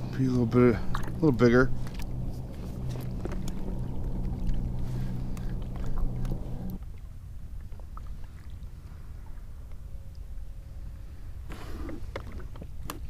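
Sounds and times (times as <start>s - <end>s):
low motor hum: 0.0s - 11.5s
low rumble: 0.0s - 11.5s.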